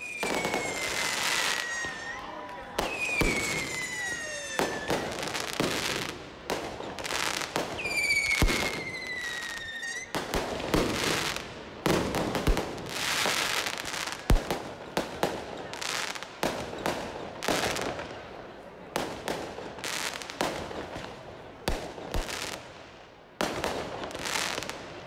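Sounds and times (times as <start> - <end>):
firework whistles sliding down: 0.0 - 5.5, 7.8 - 10.2
fireworks bangs and crackling: 0.0 - 25.0.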